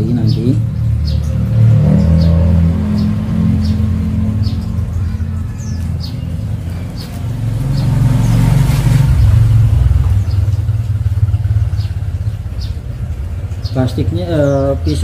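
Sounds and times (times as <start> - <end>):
passing vehicle engine rumble: 0.0 - 15.0
small bird chirping: 0.0 - 15.0.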